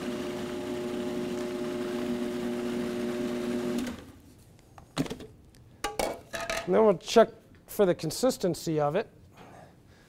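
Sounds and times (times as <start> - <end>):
food processor motor running: 0.0 - 4.1.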